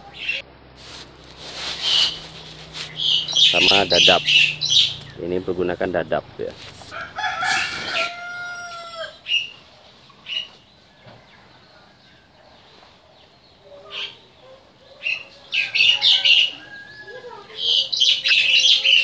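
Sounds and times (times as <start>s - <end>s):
bird chirps: 1.7s - 6.5s, 13.1s - 19.0s
rooster crowing: 6.8s - 9.3s, 15.4s - 17.6s.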